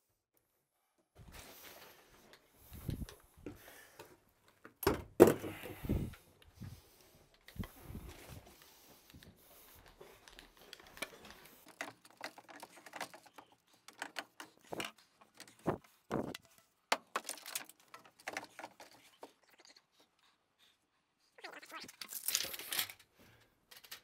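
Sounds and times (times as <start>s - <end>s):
plastic pipes knocking and clattering: 2.8s - 6.2s, 10.2s - 19.4s.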